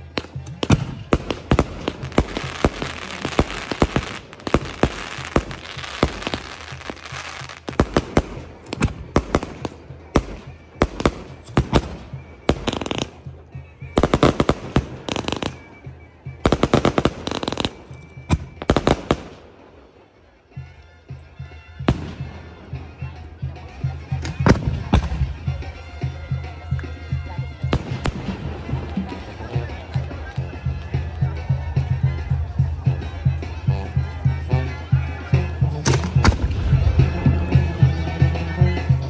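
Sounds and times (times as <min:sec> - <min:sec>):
fireworks hissing and crackling: 0:00.0 - 0:13.2, 0:16.4 - 0:20.0
firework shells bursting: 0:00.2 - 0:13.2.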